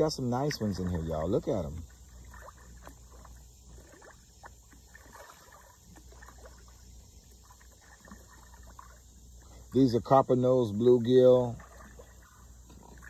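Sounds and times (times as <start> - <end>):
fish splashing at water surface: 1.8 - 9.6, 11.4 - 13.0.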